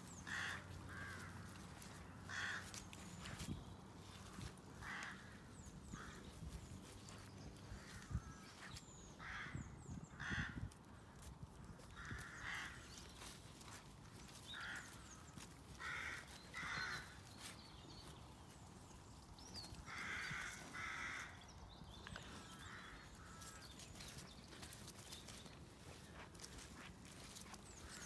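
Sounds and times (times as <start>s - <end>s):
footsteps in grass: 0.0s - 28.0s
crows cawing: 0.2s - 3.0s, 4.3s - 6.3s, 7.7s - 17.6s, 19.8s - 21.6s, 22.2s - 23.7s.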